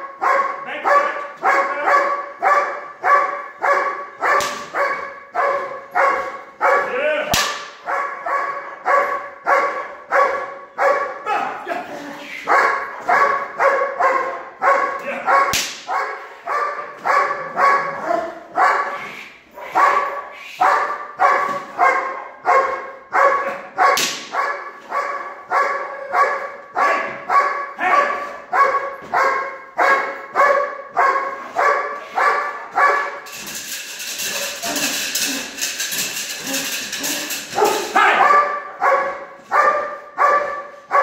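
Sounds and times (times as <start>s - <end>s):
dog barking: 0.0s - 11.3s, 12.4s - 33.2s, 36.4s - 41.0s
sharp cracks: 4.3s - 4.9s, 7.3s - 7.9s, 15.5s - 16.0s, 23.9s - 24.7s.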